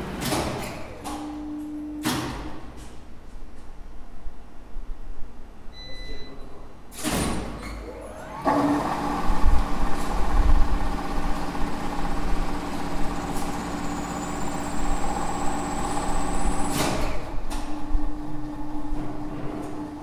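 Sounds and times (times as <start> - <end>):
winch motor humming and whining: 7.8 - 19.0.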